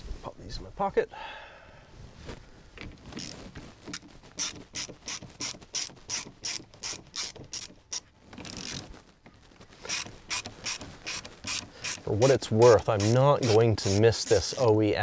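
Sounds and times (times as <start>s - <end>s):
scraping rasp: 9.8s - 14.8s.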